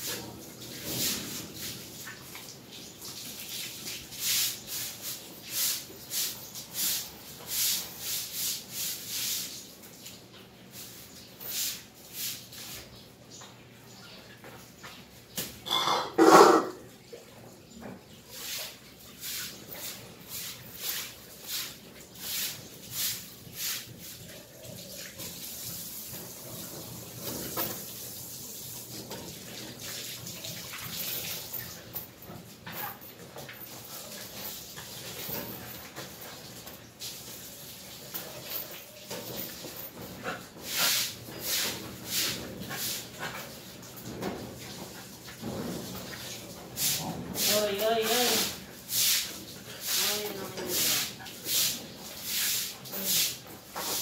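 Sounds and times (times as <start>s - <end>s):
broom scrubbing wet concrete: 0.0s - 12.9s, 18.3s - 26.8s, 40.2s - 54.0s.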